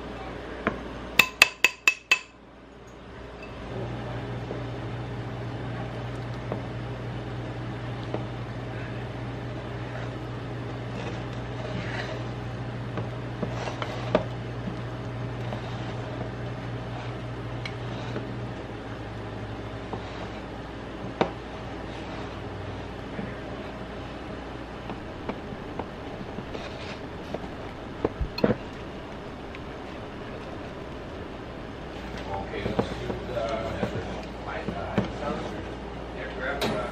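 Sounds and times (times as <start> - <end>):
spatula tapping ceramic bowl: 1.2 - 2.3
appliance motor humming: 21.9 - 35.4.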